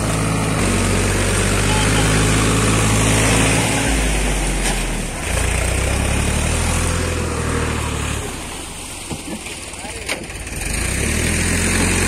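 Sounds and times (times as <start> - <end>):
tractor engine droning: 0.0 - 12.0.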